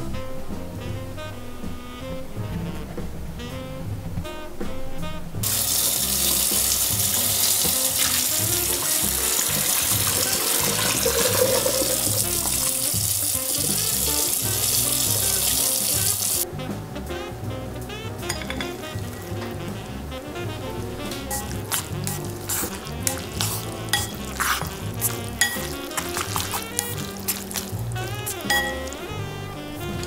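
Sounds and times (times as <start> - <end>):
tap running: 5.4 - 16.4
water splashing into steel sink: 5.4 - 16.4, 21.2 - 29.2.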